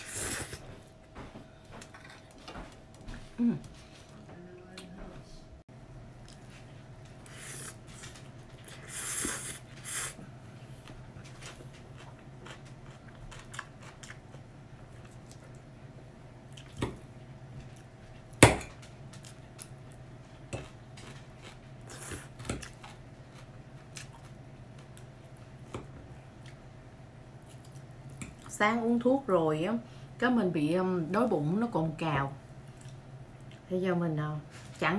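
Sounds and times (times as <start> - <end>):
steady low hum: 0.0 - 34.9
person slurping noodles: 8.8 - 10.2.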